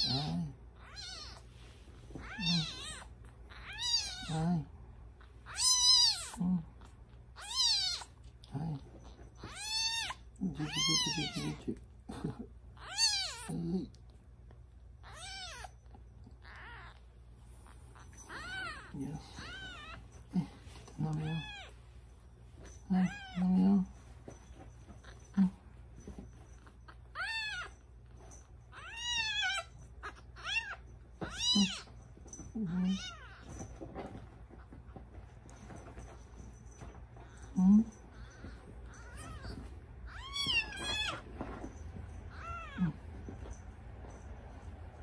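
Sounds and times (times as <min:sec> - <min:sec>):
kitten mewing: 0:16.4 - 0:17.0, 0:28.8 - 0:31.9.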